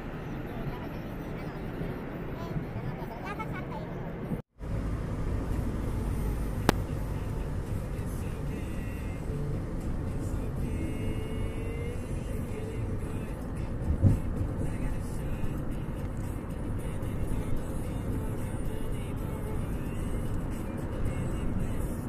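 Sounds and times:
road and engine rumble: 0:00.0 - 0:22.0
sharp click: 0:06.6 - 0:06.9.

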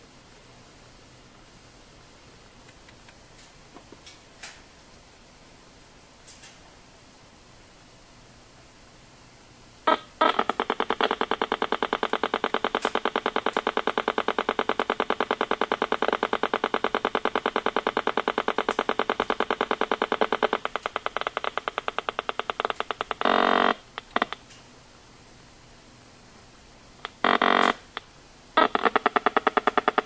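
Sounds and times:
meter speaker buzzy pulses: 0:09.8 - 0:24.4, 0:26.8 - 0:30.0.

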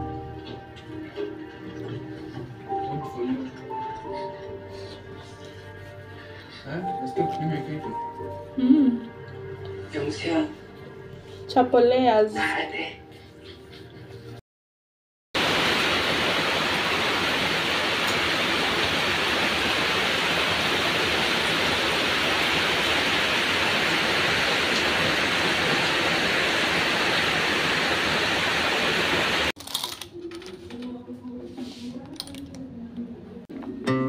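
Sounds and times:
heavy rain pouring: 0:15.4 - 0:29.5.

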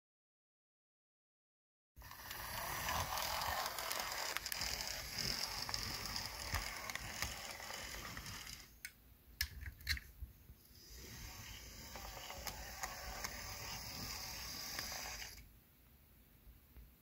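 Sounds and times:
model train motor whirring: 0:02.0 - 0:08.7, 0:10.8 - 0:15.4.

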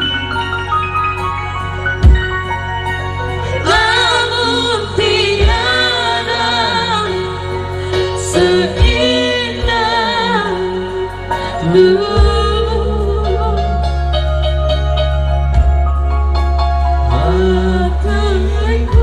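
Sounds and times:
electronic keyboards: 0:00.0 - 0:19.0
woman singing: 0:03.6 - 0:14.2, 0:17.1 - 0:19.0
man singing: 0:08.3 - 0:14.0, 0:17.0 - 0:19.0.

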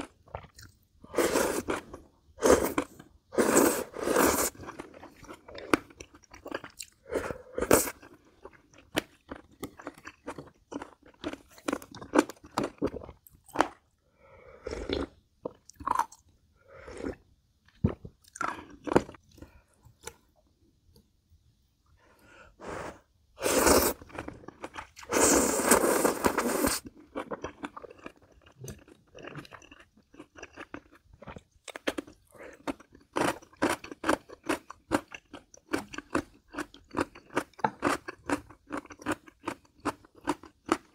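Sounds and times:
loud noodle slurp: 0:01.1 - 0:04.8, 0:22.7 - 0:24.3, 0:25.0 - 0:26.8
wet chewing and smacking: 0:26.9 - 0:40.9.

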